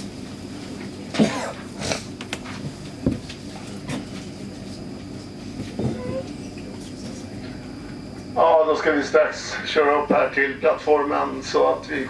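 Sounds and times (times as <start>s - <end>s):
metro car interior hum: 5.6s - 6.5s.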